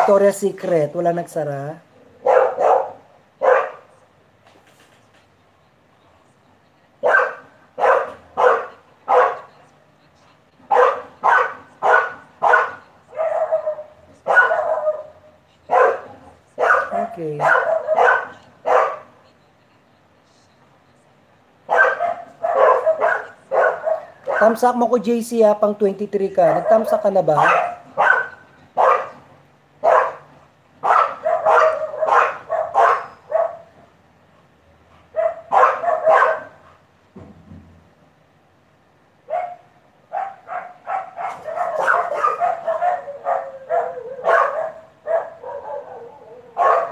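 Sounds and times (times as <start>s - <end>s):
dogs barking loudly: 2.0s - 4.0s, 7.0s - 9.5s, 10.7s - 19.2s, 21.7s - 25.0s, 26.2s - 37.0s, 39.2s - 46.9s.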